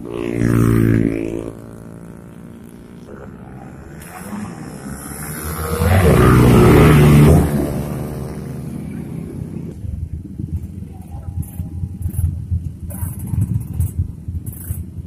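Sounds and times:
motorcycle engine passing: 0.0 - 9.8.

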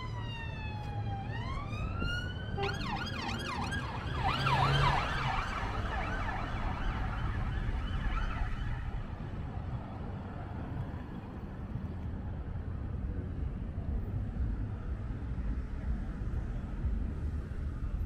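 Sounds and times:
police car siren: 0.0 - 9.4
low traffic rumble: 0.0 - 18.0.

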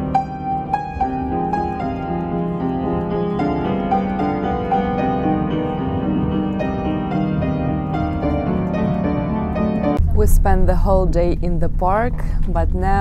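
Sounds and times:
upright piano melody: 0.0 - 11.4
low steady rumble: 10.0 - 13.0.

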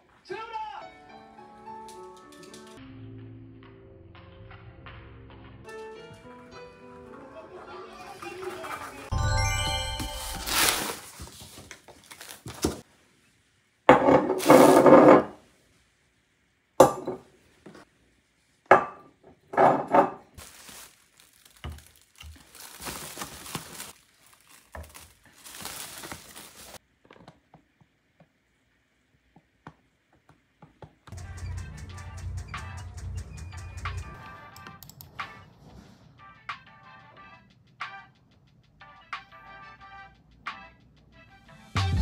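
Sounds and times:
packing material rustling: 10.1 - 12.8, 20.4 - 26.8.

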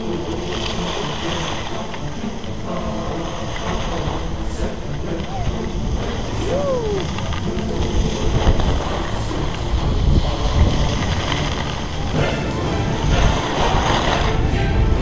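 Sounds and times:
skis hissing over snow: 0.0 - 15.0
wind rushing over microphone: 0.0 - 15.0
falling tone: 5.1 - 7.8.

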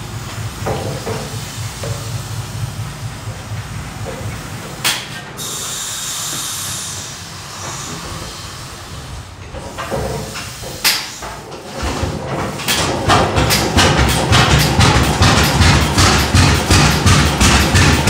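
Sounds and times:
tractor engine firing unevenly: 10.2 - 18.0
sharp knocks: 12.7 - 18.0.

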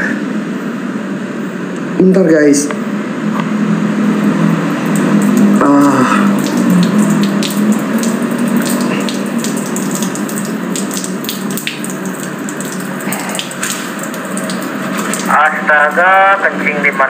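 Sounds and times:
urine stream splashing on floor: 4.2 - 16.4.

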